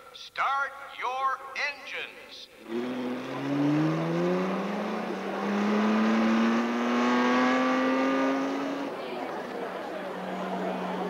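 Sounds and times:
small gasoline engines accelerating: 2.6s - 11.0s.

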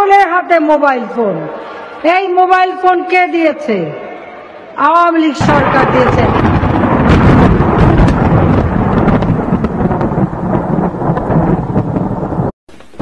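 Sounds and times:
rumbling roar with crackles: 5.4s - 13.0s.

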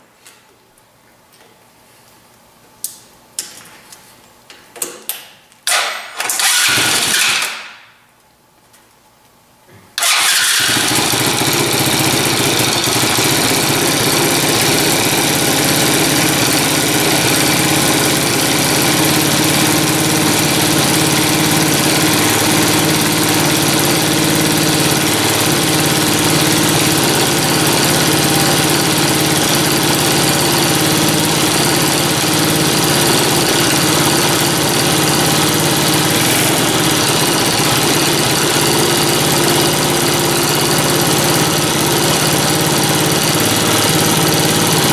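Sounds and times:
small engine idling: 6.3s - 7.4s, 10.0s - 44.9s.

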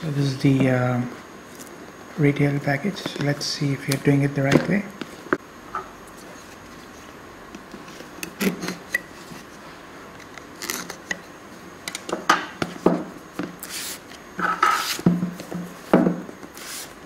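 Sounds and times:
knife cutting cardboard: 14.7s - 15.0s, 16.5s - 17.0s.

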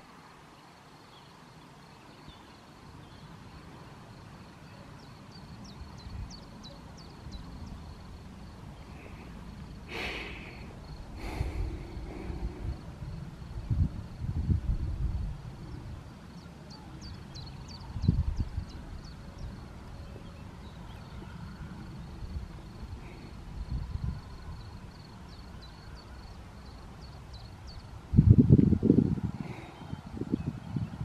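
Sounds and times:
wind buffeting microphone: 5.6s - 16.3s, 17.0s - 26.1s, 27.0s - 31.0s.

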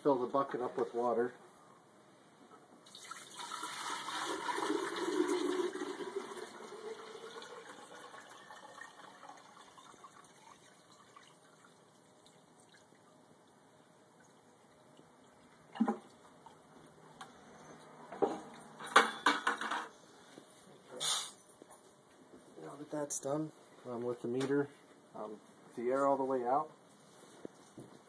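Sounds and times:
water pouring into metal bowl: 2.9s - 11.8s.

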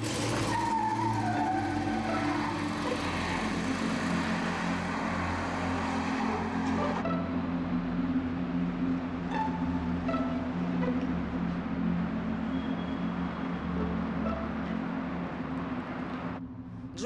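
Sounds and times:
suv engine accelerating: 0.0s - 7.8s.

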